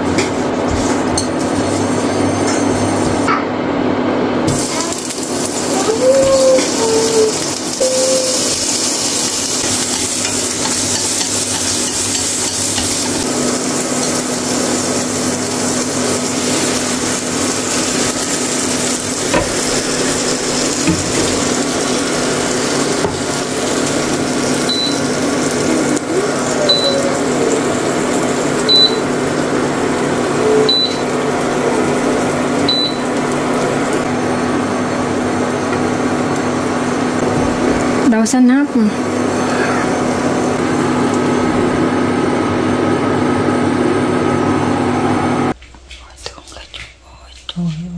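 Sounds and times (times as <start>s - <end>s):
food sizzling in hot oil: 4.4s - 38.1s
short high electronic beep: 7.8s - 8.6s.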